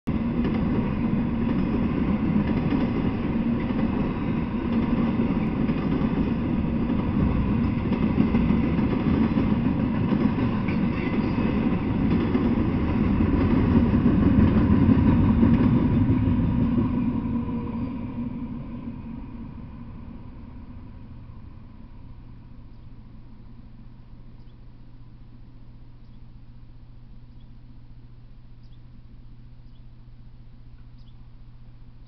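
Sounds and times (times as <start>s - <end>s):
freight train wheels rumbling: 0.1s - 23.3s.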